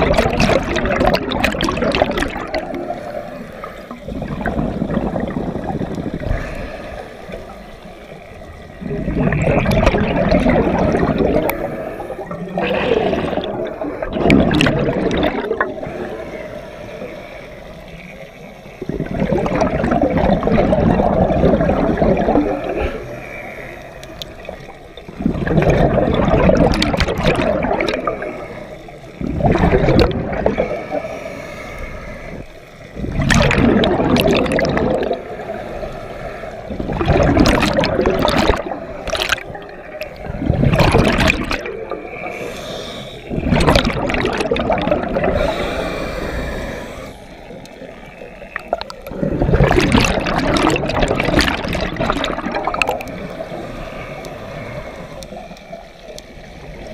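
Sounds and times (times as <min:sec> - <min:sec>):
rushes of exhaled bubbles: 0:00.0 - 0:56.9
diver breathing through regulator: 0:02.6 - 0:19.6, 0:27.3 - 0:49.8, 0:51.6 - 0:56.9.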